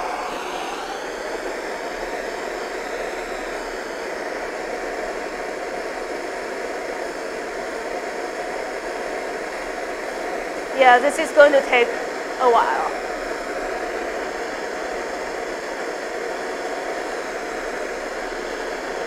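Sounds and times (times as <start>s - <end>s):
gas torch flame hissing: 0.0s - 19.0s.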